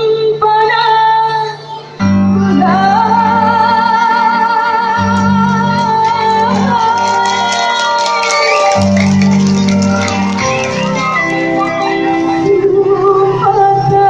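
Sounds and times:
woman singing through microphone: 0.0 - 7.9, 12.2 - 14.0
electronic keyboard accompaniment: 1.4 - 14.0.

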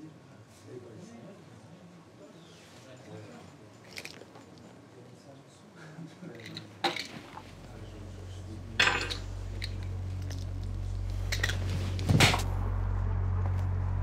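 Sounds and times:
low steady hum: 6.4 - 14.0
metal spoon clinking: 8.8 - 10.4.

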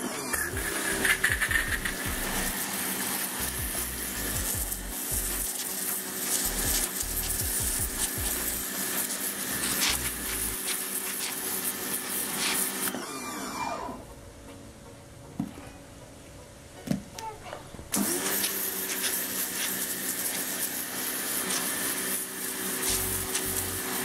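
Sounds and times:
motor winding down whine: 0.0 - 10.6, 12.8 - 14.2
water jet hissing: 0.0 - 12.9, 18.0 - 24.0
pressure washer motor humming: 0.0 - 14.1, 17.9 - 24.0.

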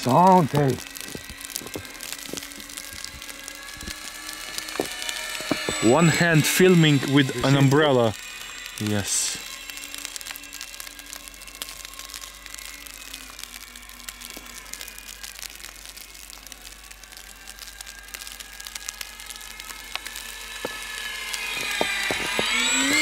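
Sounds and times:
light ticks and crackles: 0.0 - 23.0
model plane motors whining: 0.0 - 23.0.

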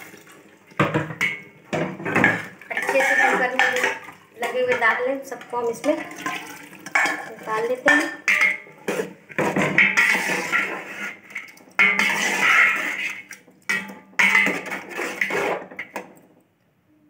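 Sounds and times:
ladle scraping metal pot: 0.0 - 16.3.

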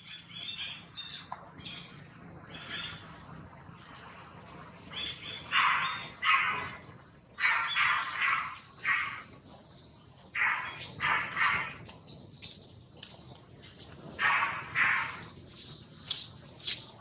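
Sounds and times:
monkeys giving harsh calls: 5.0 - 9.3, 10.3 - 11.9, 14.2 - 15.3.

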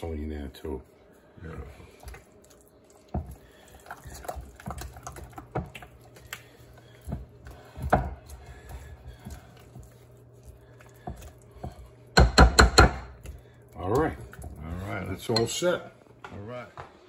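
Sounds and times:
spatula tapping and scraping bowl: 3.1 - 10.0, 10.8 - 14.5.

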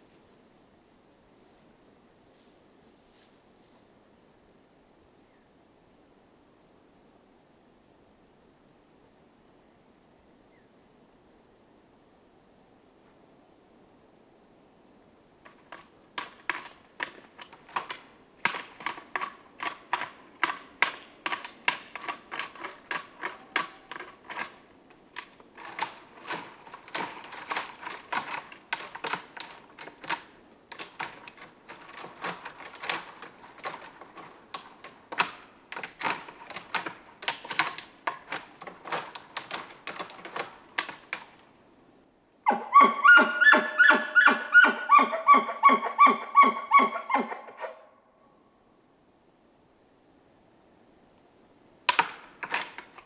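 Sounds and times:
antlers clacking on branches: 15.4 - 41.5, 51.9 - 53.0.

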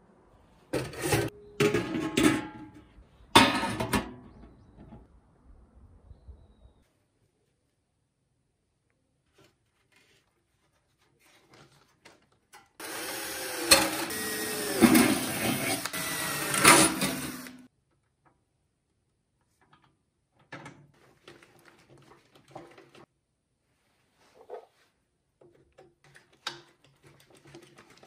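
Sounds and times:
drill drilling into metal: 12.8 - 17.7.

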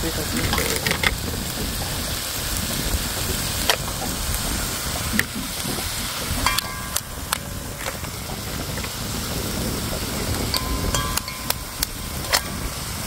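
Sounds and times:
steady rushing noise: 0.0 - 13.0
knife and shells knocking metal pot: 0.4 - 1.2, 6.4 - 9.0, 10.5 - 12.7.

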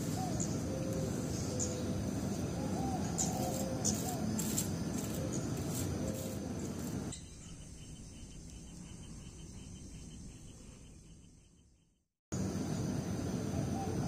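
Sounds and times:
bird chirps: 7.1 - 12.0.

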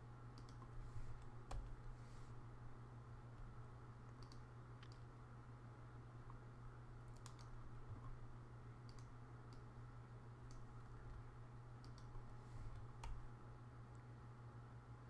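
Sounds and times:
faint low hum: 0.0 - 15.0
computer keys clicking: 0.4 - 0.7, 1.4 - 1.8, 4.1 - 5.1, 7.1 - 8.2, 8.8 - 9.7, 10.4 - 11.2, 11.8 - 12.2, 12.8 - 13.3.

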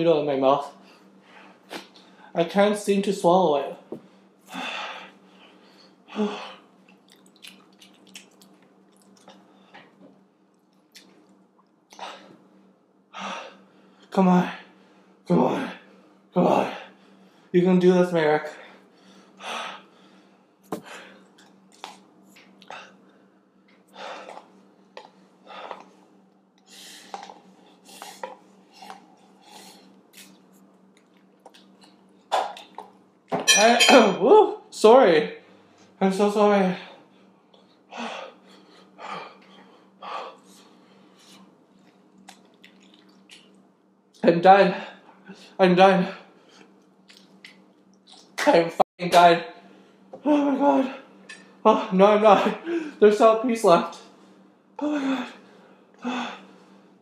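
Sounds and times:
person huffing heavy breaths: 4.5 - 6.6, 52.4 - 53.0, 54.8 - 56.8
wet mouth clicks and smacks: 6.8 - 9.4, 10.5 - 11.8, 41.9 - 43.6, 46.6 - 48.4.

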